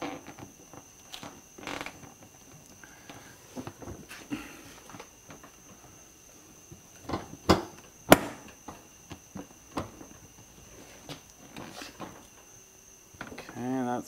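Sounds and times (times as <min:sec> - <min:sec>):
plastic bumper knocks and clicks: 0:07.1 - 0:10.0.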